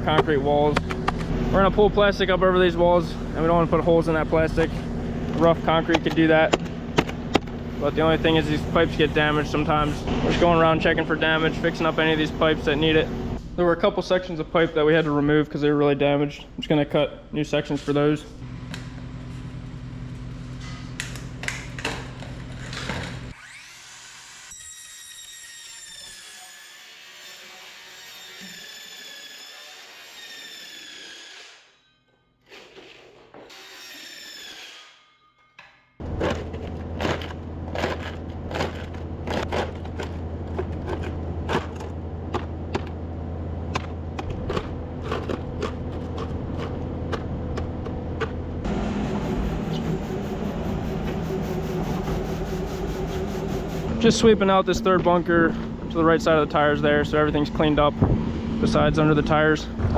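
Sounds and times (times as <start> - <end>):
steady low hum: 0.0 - 23.3, 36.0 - 59.9
circular saw cutting plastic pipe: 22.6 - 31.8, 32.5 - 35.2
skid steer engine running: 36.0 - 59.9.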